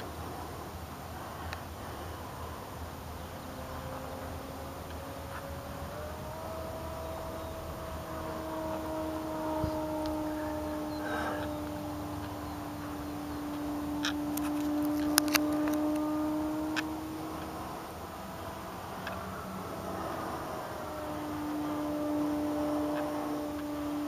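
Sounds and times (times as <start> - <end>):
model plane motor droning: 0.0 - 24.0
sharp clicks: 13.5 - 16.1.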